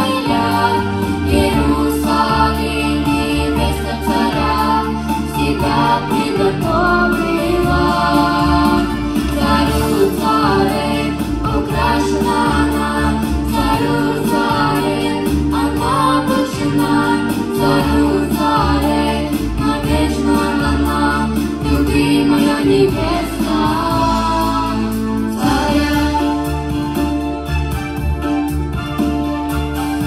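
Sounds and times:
children singing into microphones: 0:00.0 - 0:26.5.

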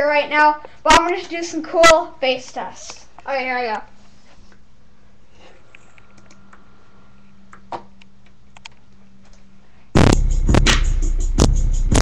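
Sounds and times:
keyboard and mouse clicks: 0:05.7 - 0:06.6
bass-heavy music: 0:10.0 - 0:12.0.

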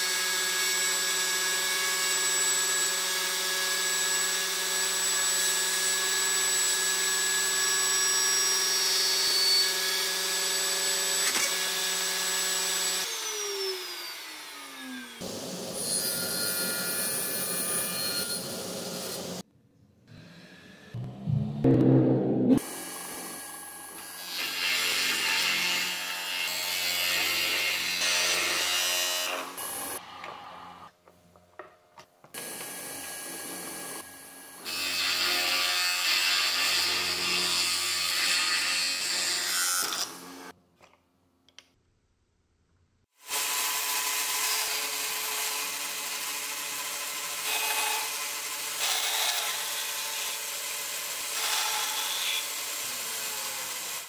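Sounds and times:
bandsaw cutting plywood: 0:22.6 - 0:30.0, 0:43.2 - 0:54.0.

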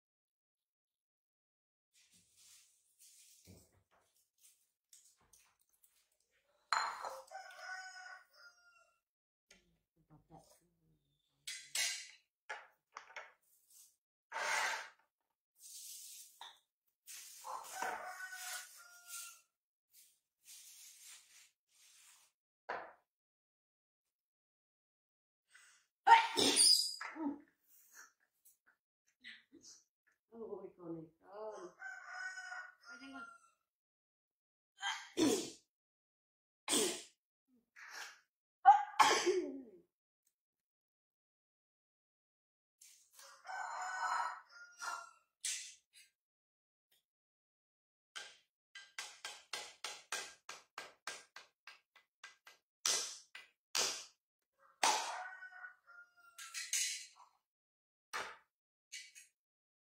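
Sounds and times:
woman sneezing: 0:26.1 - 0:26.8, 0:38.7 - 0:39.6.

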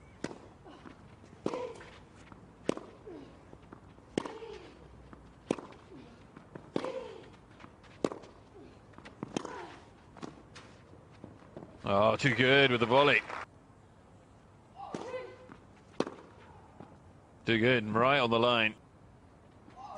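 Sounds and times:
tennis racket hitting ball: 0:04.1 - 0:04.6, 0:05.4 - 0:05.8.

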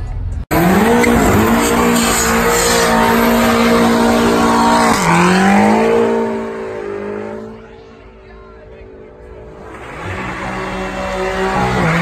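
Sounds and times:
tyres spinning and squealing: 0:00.5 - 0:08.0
car engine revving high: 0:00.5 - 0:08.2, 0:08.8 - 0:12.0.

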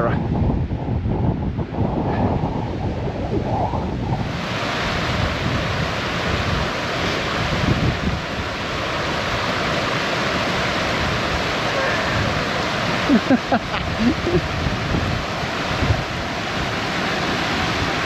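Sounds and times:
wind buffeting microphone: 0:00.0 - 0:18.0
rocky river rushing: 0:04.3 - 0:18.0.

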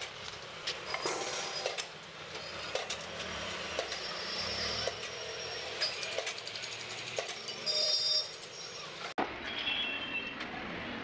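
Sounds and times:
street traffic: 0:00.0 - 0:11.0
sharp metallic clicks: 0:05.8 - 0:07.6.

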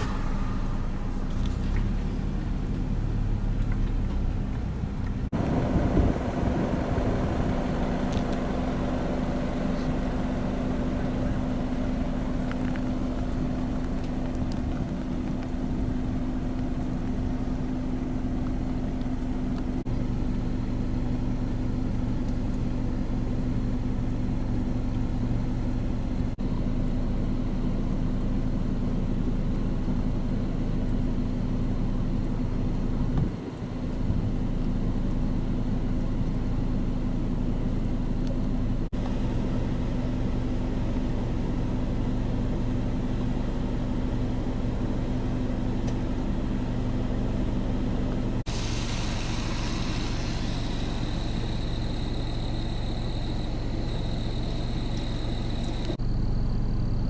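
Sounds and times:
thin high whine: 0:00.0 - 0:02.4, 0:48.5 - 0:56.3
low motor hum: 0:00.0 - 0:57.0.

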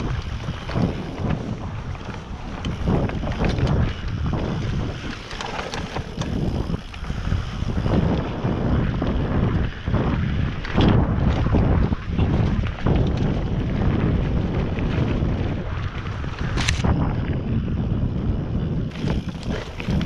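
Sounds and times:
tyres rolling over dirt and leaves: 0:00.0 - 0:08.0
bike knocks and rattles: 0:00.0 - 0:20.0
wind buffeting microphone: 0:00.0 - 0:20.0.

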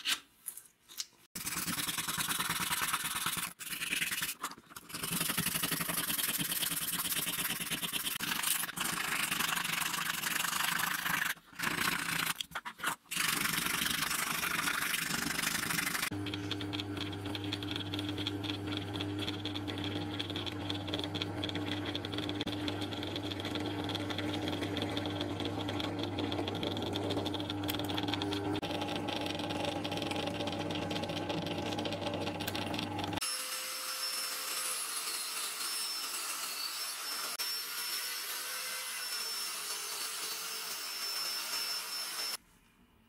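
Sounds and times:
drill press humming: 0:15.4 - 0:33.2.

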